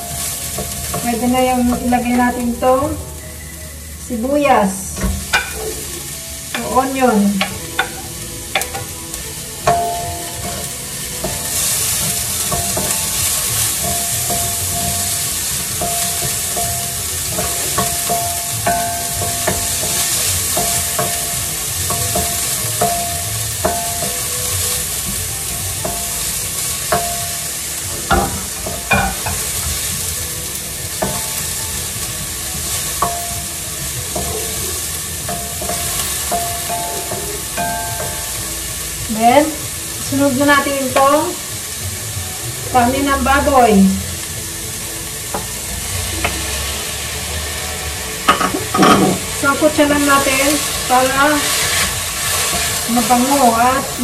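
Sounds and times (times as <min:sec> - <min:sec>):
vegetables sizzling in hot oil: 0:00.0 - 0:54.0
wooden spatula scraping pan: 0:48.4 - 0:54.0.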